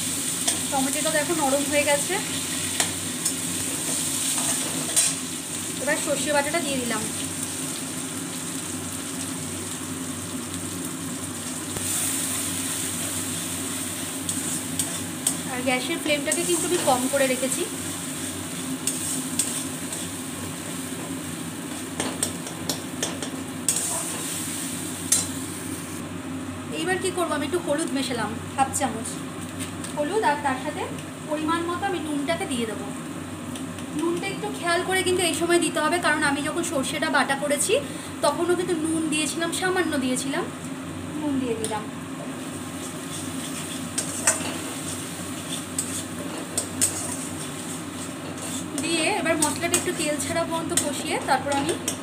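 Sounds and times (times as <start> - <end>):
food sizzling in oil: 0.0 - 52.0
spatula scraping and tapping pan: 42.8 - 50.0.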